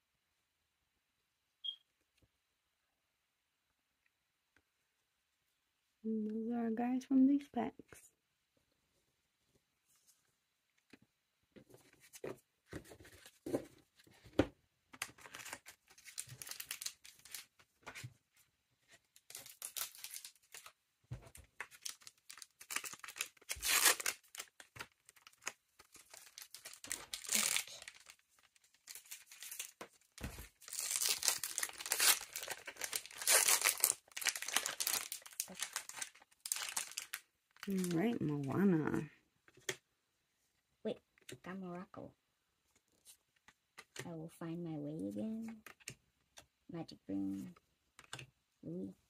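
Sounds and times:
foil wrappers tearing and crinkling: 15.2 - 17.5, 19.2 - 20.7, 21.6 - 38.0.

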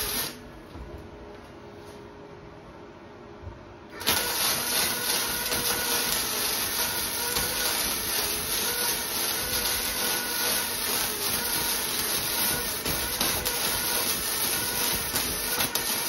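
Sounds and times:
welder arc crackling: 0.0 - 0.4, 3.9 - 16.0.

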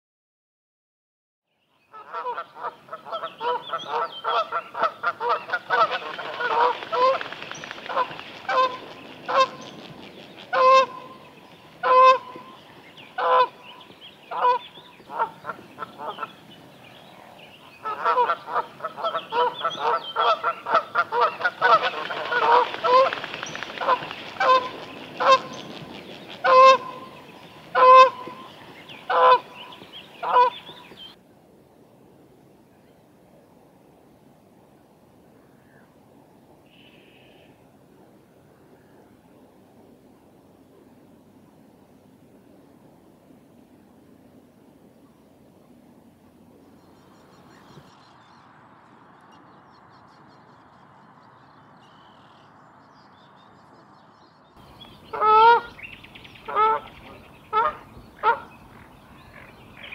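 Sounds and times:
bird calling: 1.9 - 31.2, 54.6 - 59.9.

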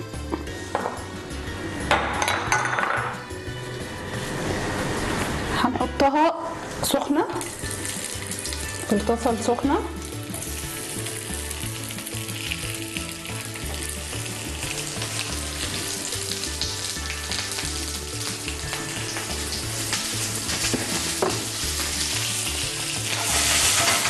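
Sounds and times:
zucchini sizzling in hot oil: 6.8 - 24.0.

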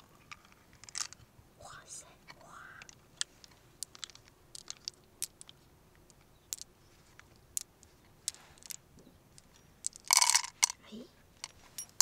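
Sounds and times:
mussel shell clicking and crunching: 2.6 - 8.8.

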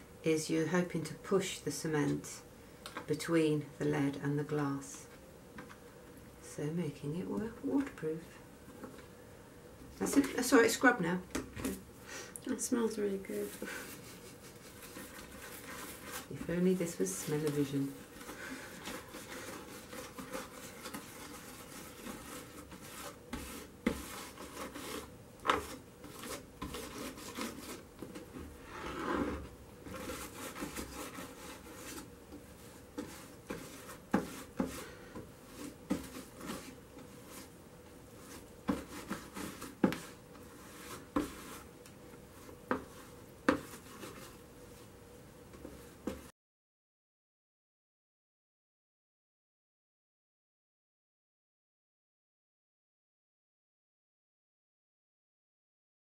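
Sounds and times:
stiff brush scrubbing: 13.0 - 27.9, 28.7 - 44.4.

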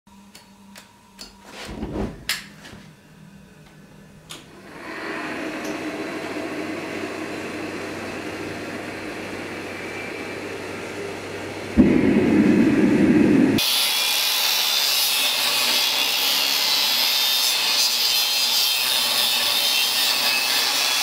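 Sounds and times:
forge burners rushing: 4.3 - 15.1.

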